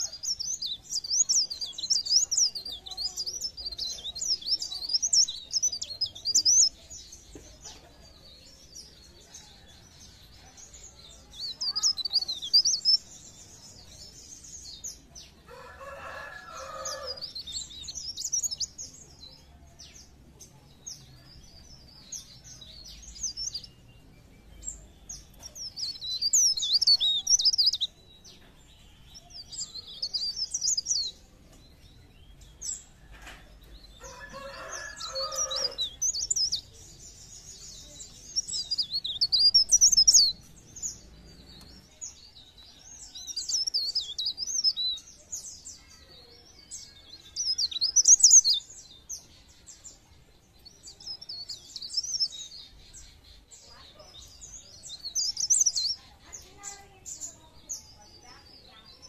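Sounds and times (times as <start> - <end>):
rooster crowing: 15.5 - 17.2, 34.0 - 35.8
songbird twittering: 32.0 - 45.2.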